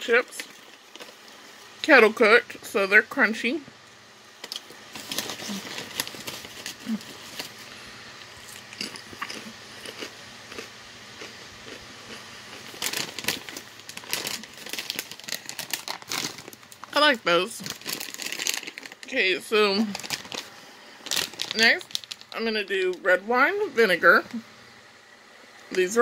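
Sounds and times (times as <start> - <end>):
person chewing crisps: 0.3 - 1.8, 4.4 - 19.1, 19.8 - 23.0.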